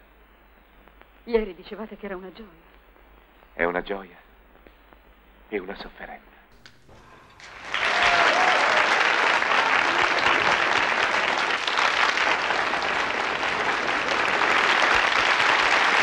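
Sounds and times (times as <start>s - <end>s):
audience applauding: 6.7s - 16.0s.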